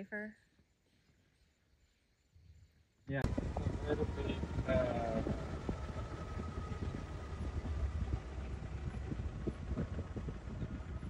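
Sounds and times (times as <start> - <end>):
vehicle engine rumbling: 3.1 - 11.0.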